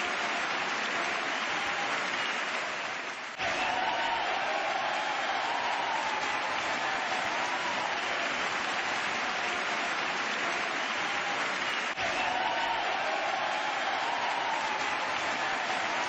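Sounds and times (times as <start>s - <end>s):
crowd applauding: 0.0s - 16.0s.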